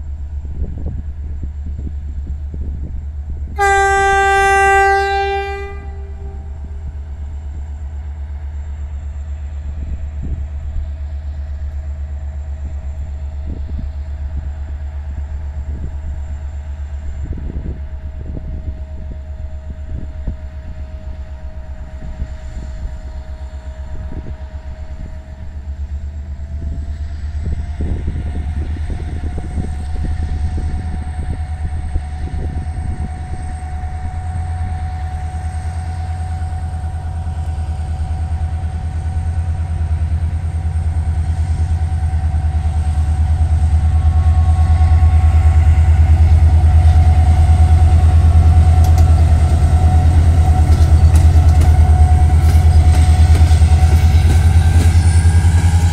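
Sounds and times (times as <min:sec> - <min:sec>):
locomotive engine rumbling: 0:00.0 - 0:55.9
locomotive horn blast: 0:03.6 - 0:06.8.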